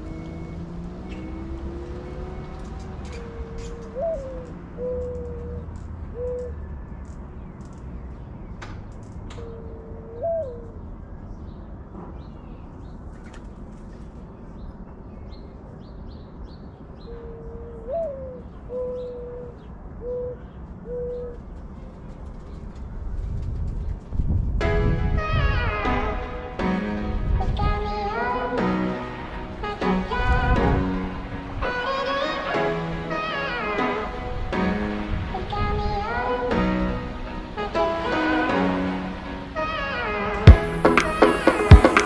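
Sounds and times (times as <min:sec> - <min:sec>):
dove cooing: 0:02.6 - 0:06.5, 0:09.4 - 0:10.8.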